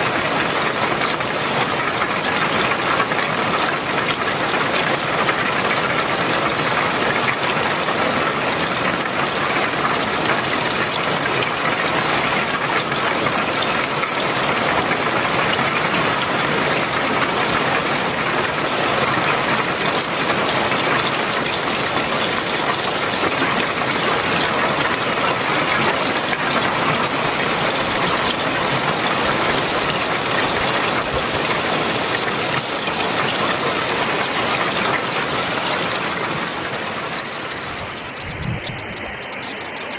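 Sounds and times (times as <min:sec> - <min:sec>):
heavy rain: 0:00.0 - 0:39.9
runoff pouring off roofs: 0:00.0 - 0:39.9.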